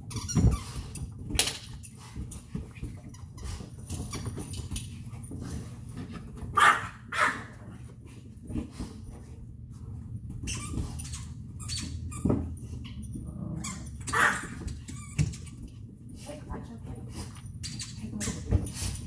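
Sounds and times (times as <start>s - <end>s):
dog barking: 6.6s - 7.5s.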